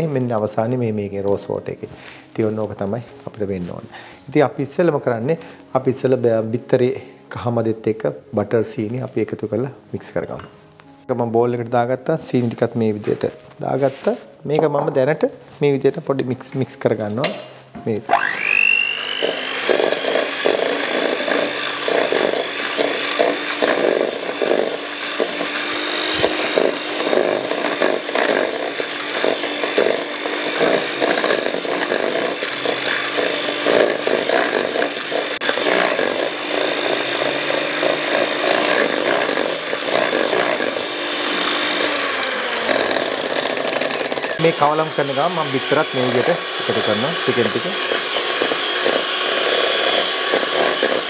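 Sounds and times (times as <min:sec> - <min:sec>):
electric mixer motor whining: 0:18.0 - 0:51.0.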